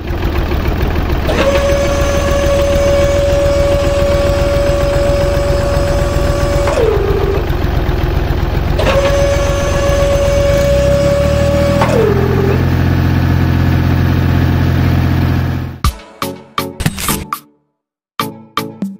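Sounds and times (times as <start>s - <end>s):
low hum: 0.0s - 15.8s
small motor whining: 1.2s - 13.3s.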